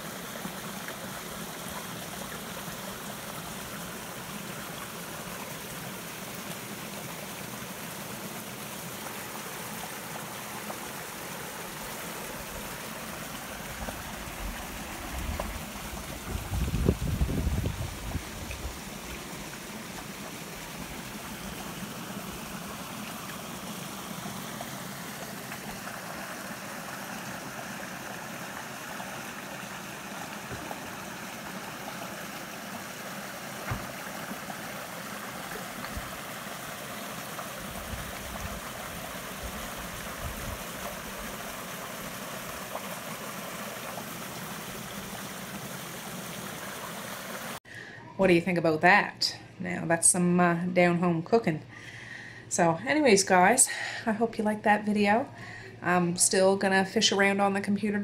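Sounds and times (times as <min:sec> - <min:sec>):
brook flowing over rocks: 0:00.0 - 0:47.6.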